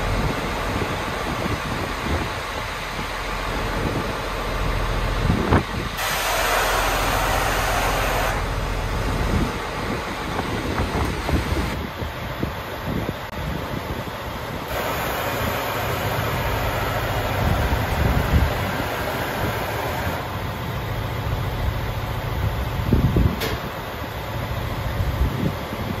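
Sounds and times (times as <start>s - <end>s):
bus engine idling: 0.0s - 26.0s
air venting hiss: 6.0s - 8.7s, 14.6s - 20.7s
sharp click: 23.4s - 23.7s.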